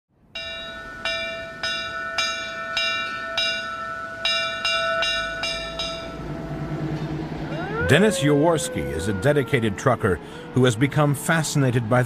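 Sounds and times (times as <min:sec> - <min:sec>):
metal bell clanging: 0:00.4 - 0:06.2.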